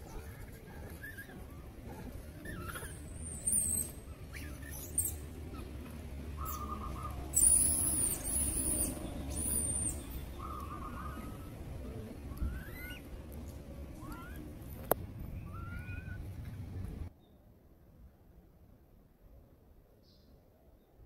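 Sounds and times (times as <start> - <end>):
low animal calls: 0.0 - 16.3
monkeys squealing: 1.0 - 5.8, 6.4 - 13.1, 15.4 - 16.2.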